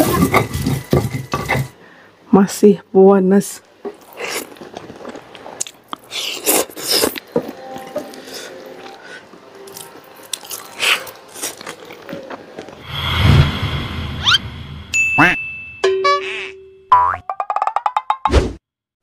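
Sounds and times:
crunching and chewing: 3.9s - 12.8s.

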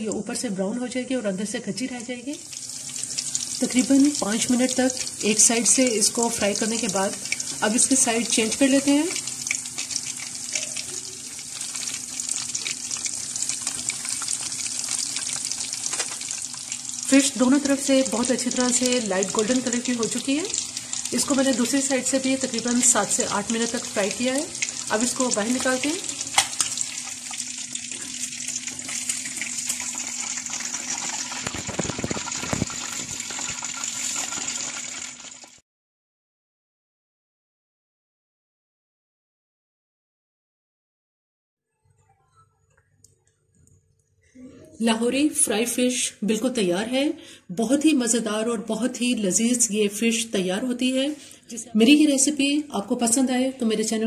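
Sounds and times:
fish deep-frying in hot oil: 1.4s - 35.6s.

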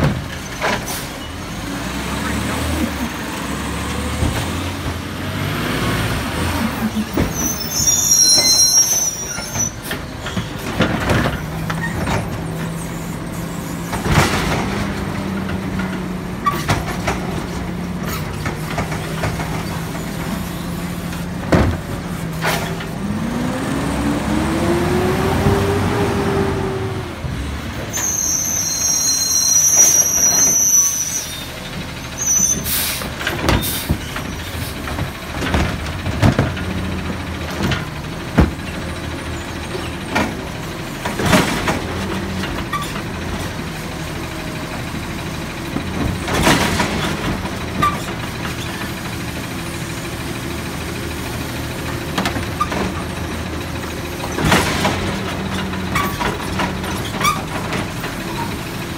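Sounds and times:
truck engine revving: 1.5s - 7.6s, 12.4s - 27.8s
cart knocking and banging: 32.5s - 43.6s.

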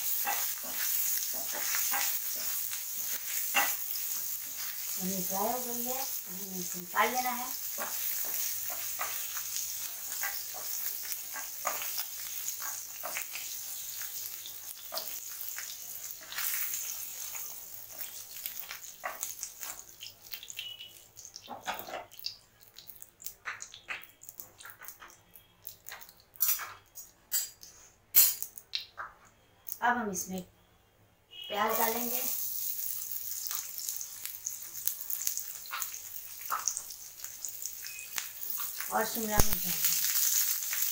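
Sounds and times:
spatula scraping and tapping pan: 0.0s - 4.9s, 7.6s - 19.8s, 25.9s - 27.8s
hot oil sizzling in a pan: 0.0s - 26.7s, 31.4s - 40.9s.

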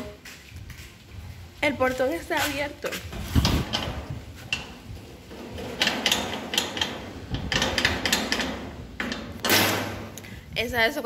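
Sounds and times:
metal gate latch rattling: 3.4s - 10.2s.

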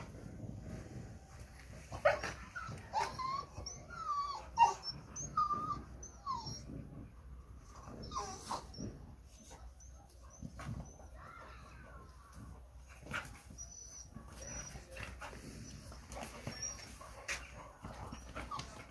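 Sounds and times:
puppies whimpering and yipping: 2.0s - 11.2s, 13.4s - 18.9s.

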